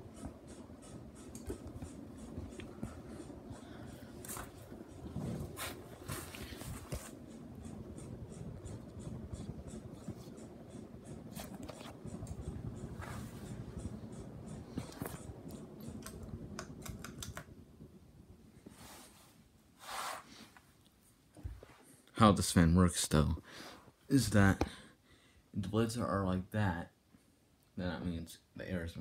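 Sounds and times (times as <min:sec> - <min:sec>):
ceiling fans whirring: 0:00.0 - 0:29.0
light ticks and clicks: 0:13.5 - 0:17.5.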